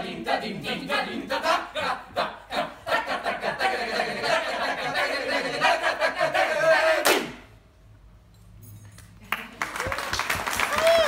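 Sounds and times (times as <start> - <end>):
group reciting rhythmic syllables: 0.0 - 7.6.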